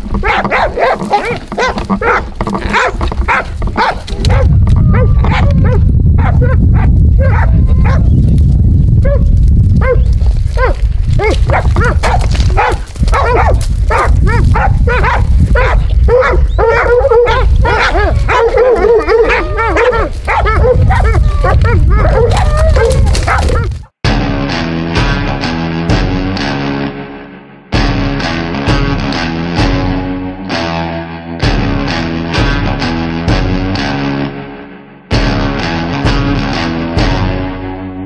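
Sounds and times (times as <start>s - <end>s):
dogs barking and yelping: 0.1s - 8.2s, 9.0s - 23.8s
low rumble on microphone: 1.4s - 24.0s.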